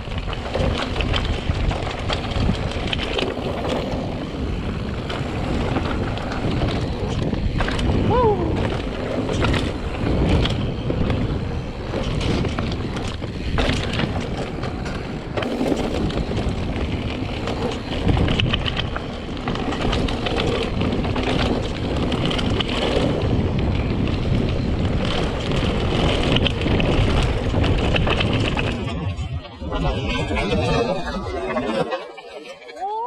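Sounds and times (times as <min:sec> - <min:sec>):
tyres running over dirt: 0:00.0 - 0:29.6
bike rattling and clicking: 0:00.0 - 0:30.6
wind rushing over microphone: 0:00.0 - 0:32.0.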